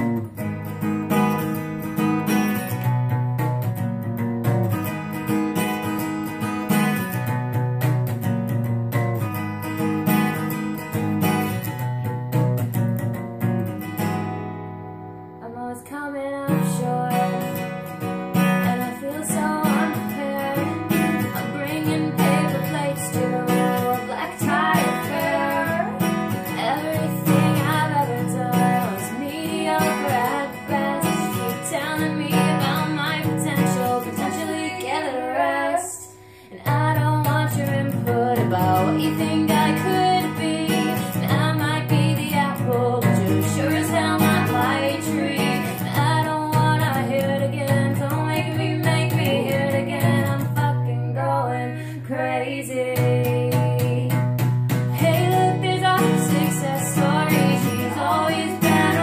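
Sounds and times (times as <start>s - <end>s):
acoustic guitar strumming: 0.0s - 59.0s
woman singing: 15.4s - 59.0s.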